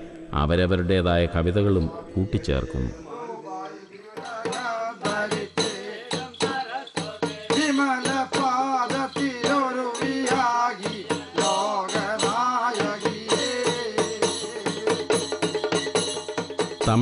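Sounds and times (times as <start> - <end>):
voice leading into a microphone: 0.0 - 3.0
men chanting: 0.0 - 16.0
quick steady percussion beat: 4.1 - 17.0.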